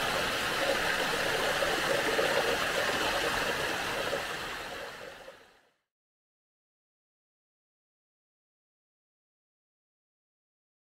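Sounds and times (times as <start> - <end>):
flowing water rushing: 0.0 - 5.6.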